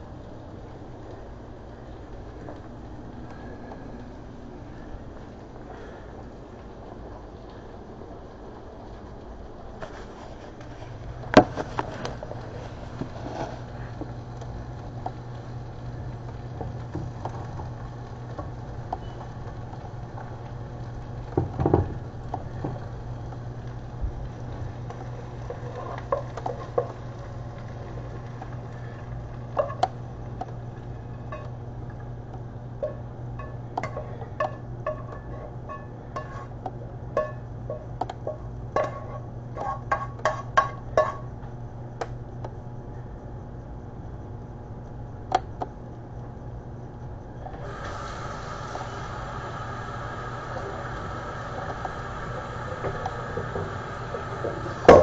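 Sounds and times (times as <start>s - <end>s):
steady low hum: 0.0s - 55.0s
spatula scraping frying pan: 32.8s - 36.6s, 37.2s - 41.2s.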